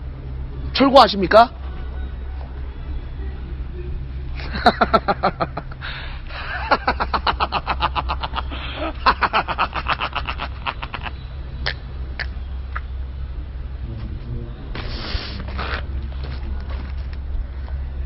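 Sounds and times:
steady low rumble: 0.0 - 0.9, 1.5 - 18.0
man laughing hard: 4.4 - 11.2.

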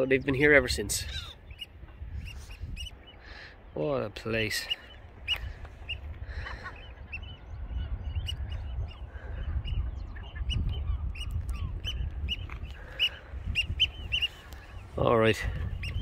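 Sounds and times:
gulls calling: 0.0 - 16.0
wind rumbling on microphone: 0.0 - 16.0.

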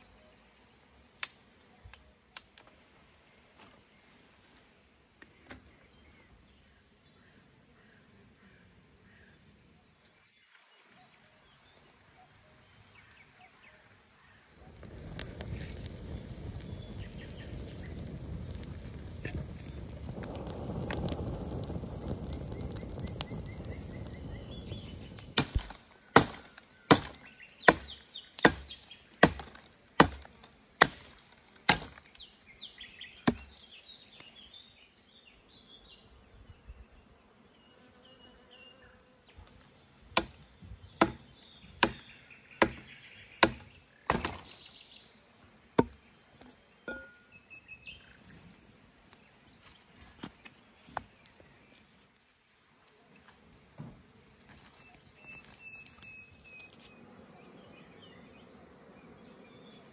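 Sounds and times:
hatchet chopping wood: 25.4 - 32.1, 33.2 - 33.5, 40.1 - 44.6, 45.8 - 46.0.

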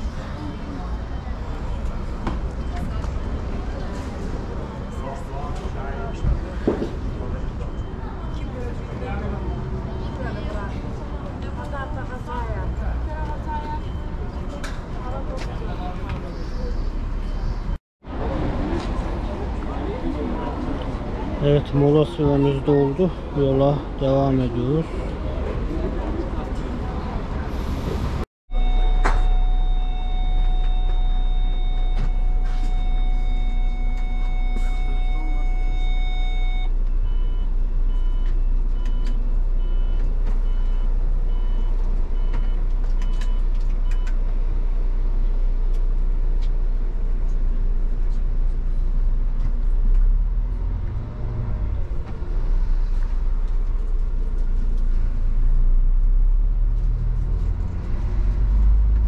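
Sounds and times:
steady electronic warning tone: 28.5 - 36.7
pulsing beep: 28.5 - 41.7.

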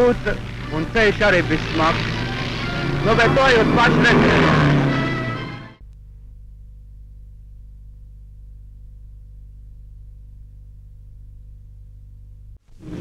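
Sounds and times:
low electrical hum: 5.8 - 13.0.

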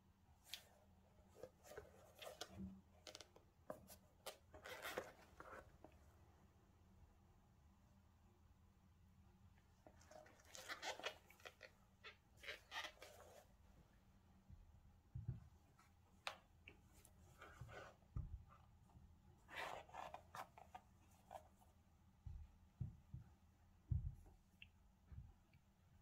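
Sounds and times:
rustle of laces and gloves: 0.4 - 6.0, 9.8 - 13.6, 19.4 - 21.8.

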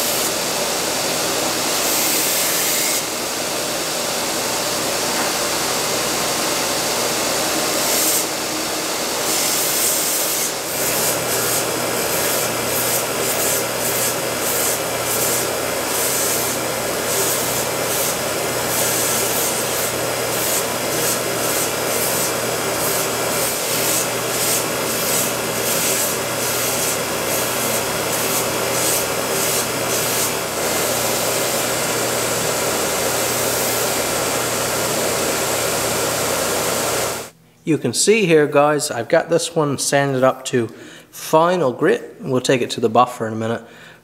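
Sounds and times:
belt grinder grinding: 7.1 - 37.2.

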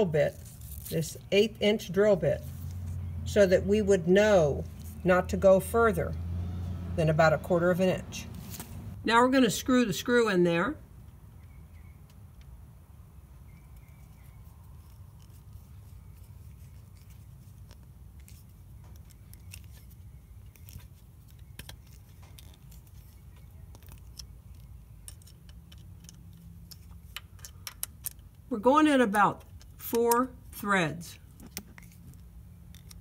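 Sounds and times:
screw clicking and scraping in metal: 23.7 - 28.4.

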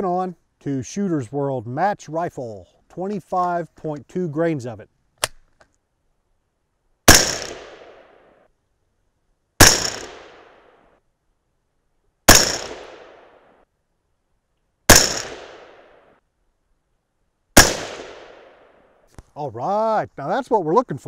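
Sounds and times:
rifle shots with echo: 7.1 - 8.3, 9.6 - 10.8, 12.3 - 13.5, 14.9 - 16.1, 17.6 - 18.8.

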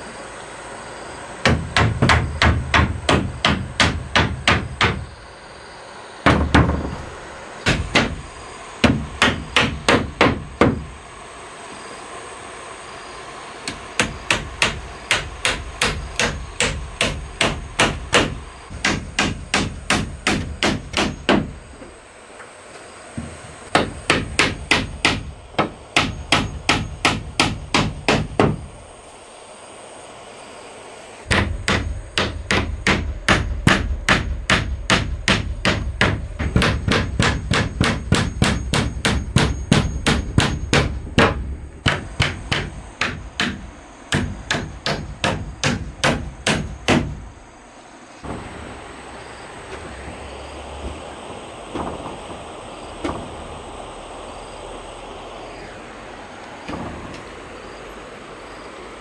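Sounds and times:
hammer driving nails into wood: 1.4 - 5.0, 7.6 - 8.2, 8.8 - 10.9, 13.7 - 21.6, 23.7 - 28.6, 31.3 - 47.2.

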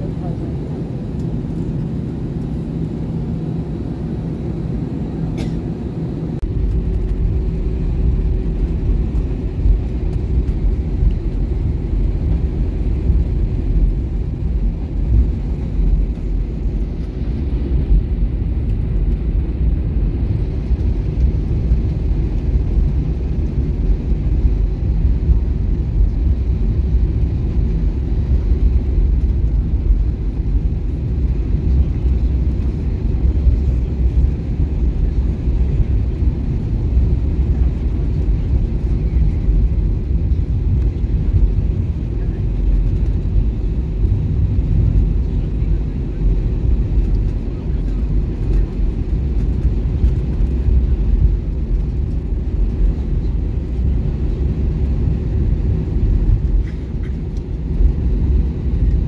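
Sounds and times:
engine and airflow noise: 0.0 - 59.0.

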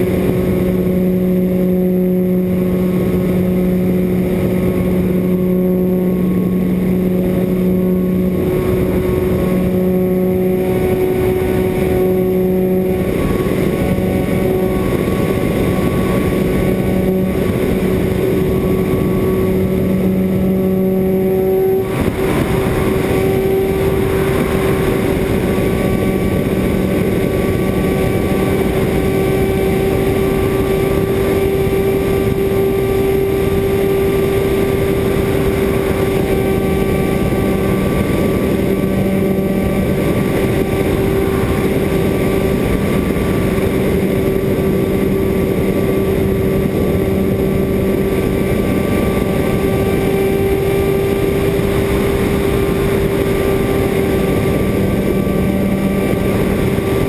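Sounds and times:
model airplane motor and propeller: 0.0 - 57.0
wind on microphone: 0.0 - 57.0.

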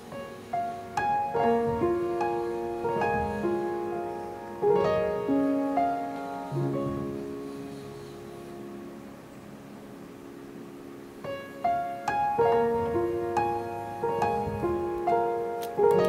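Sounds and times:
slow piano melody: 0.0 - 16.0.

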